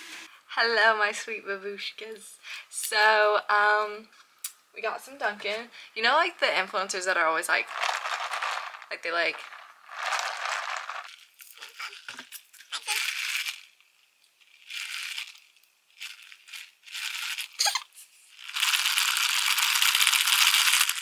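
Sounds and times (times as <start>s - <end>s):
rattling and shaking: 7.5s - 12.1s.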